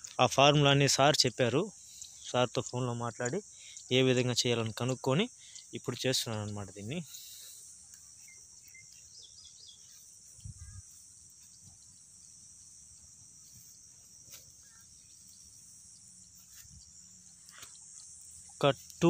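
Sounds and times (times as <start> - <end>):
insects chirring: 0.0 - 19.0
bird chirps: 5.4 - 19.0.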